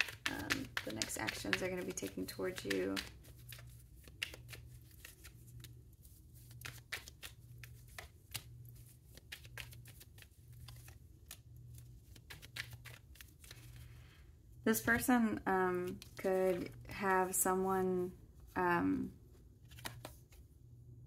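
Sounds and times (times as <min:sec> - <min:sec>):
cards shuffling and tapping: 0:00.0 - 0:17.4, 0:19.6 - 0:20.5.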